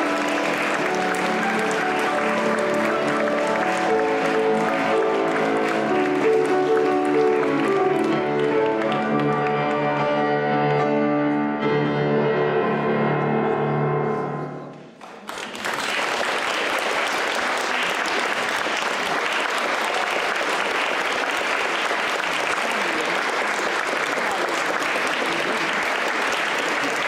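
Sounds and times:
audience applauding: 0:00.0 - 0:10.1, 0:14.8 - 0:27.0
grand piano music: 0:00.0 - 0:15.0.

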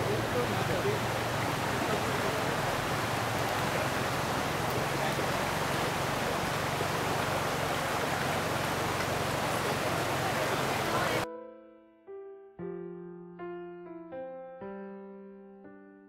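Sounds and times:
stream rushing: 0:00.0 - 0:11.2.

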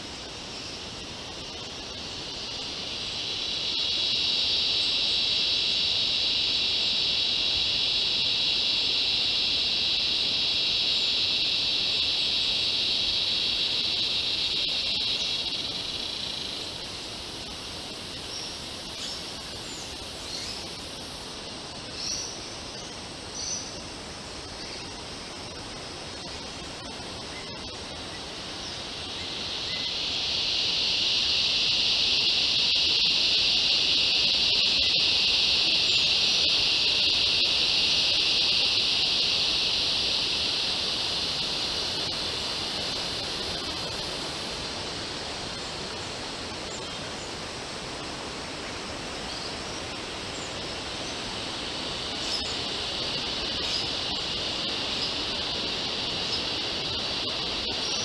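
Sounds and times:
insect chorus high-pitched drone: 0:00.0 - 0:58.0.

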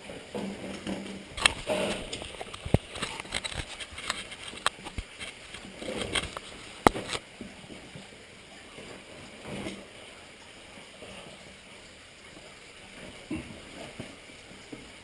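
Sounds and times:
gear scraping against rock: 0:00.7 - 0:07.2.

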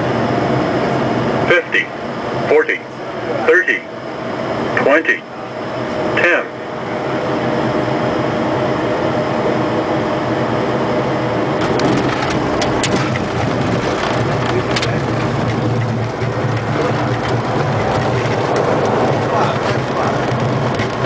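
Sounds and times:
jet landing rumble: 0:00.0 - 0:21.0
cockpit knocks and rattles: 0:11.6 - 0:21.0.

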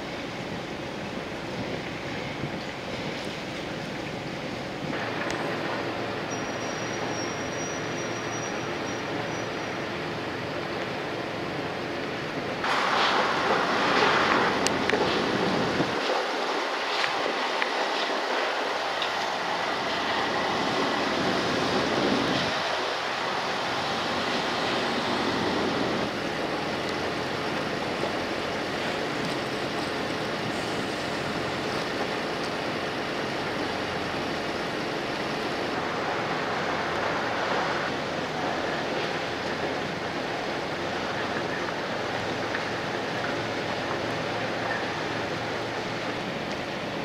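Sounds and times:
constant rushing hiss: 0:00.0 - 0:47.0
low mechanical hum: 0:00.0 - 0:47.0.

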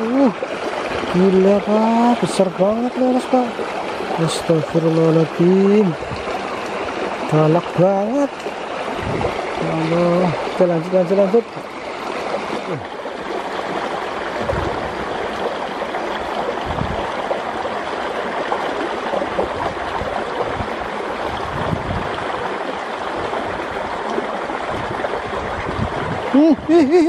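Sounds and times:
stream water rushing over rocks: 0:00.0 - 0:27.0.

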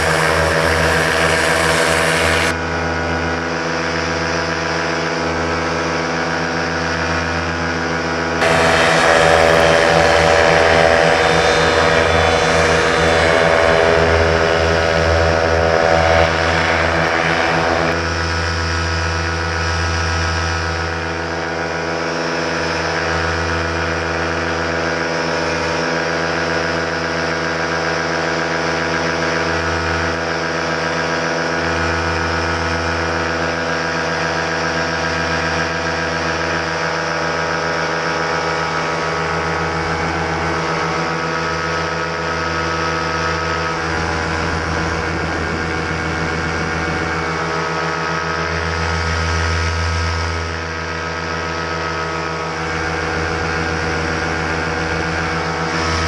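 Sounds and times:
paramotor engine and propeller droning: 0:00.0 - 0:56.0.

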